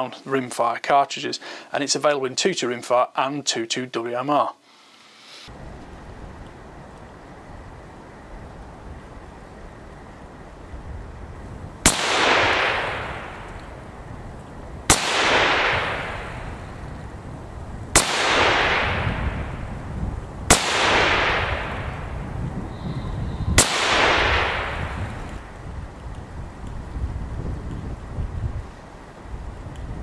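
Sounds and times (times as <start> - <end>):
rifle shots: 11.8 - 13.6, 14.9 - 16.8, 18.0 - 19.6, 20.5 - 22.2, 23.6 - 25.4.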